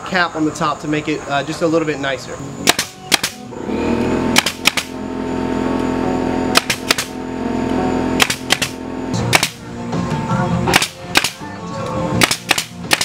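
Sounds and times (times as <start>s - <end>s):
air compressor humming: 0.0s - 13.0s
nail gun firing: 2.6s - 3.5s, 4.3s - 5.0s, 6.5s - 7.2s, 8.2s - 9.6s, 10.7s - 11.4s, 12.2s - 13.0s.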